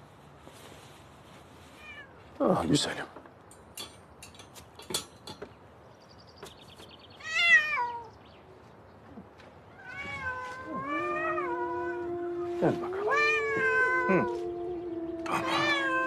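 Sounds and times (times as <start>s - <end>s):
cat meowing: 7.2s - 8.1s, 9.7s - 16.0s.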